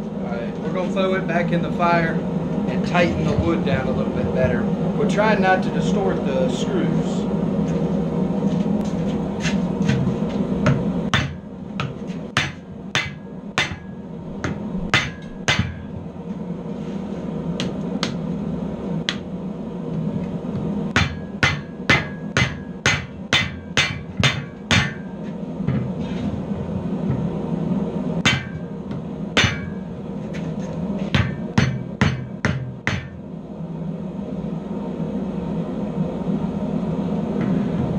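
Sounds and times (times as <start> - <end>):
low hum: 0.0 - 37.9
hammer striking metal: 10.7 - 15.9, 20.9 - 25.9, 28.2 - 28.8, 29.4 - 29.9, 31.1 - 33.2.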